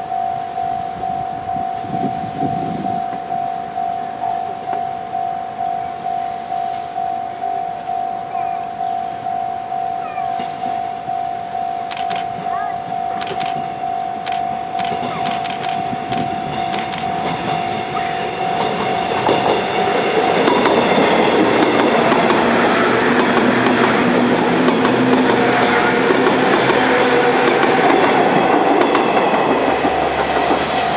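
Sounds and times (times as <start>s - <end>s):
level-crossing warning bell: 0.0s - 30.9s
train wheels clattering: 14.3s - 30.9s.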